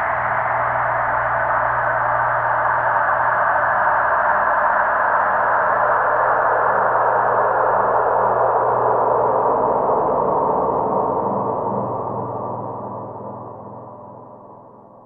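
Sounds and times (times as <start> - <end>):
faint low drone: 0.0 - 15.0.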